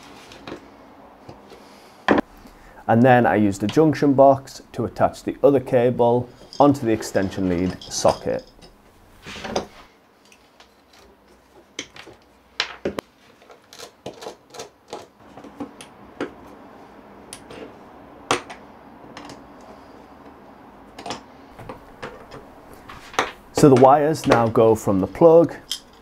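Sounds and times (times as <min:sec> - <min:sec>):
tools and parts clattering on bench: 0:06.3 - 0:13.7, 0:21.0 - 0:24.6, 0:25.5 - 0:26.0.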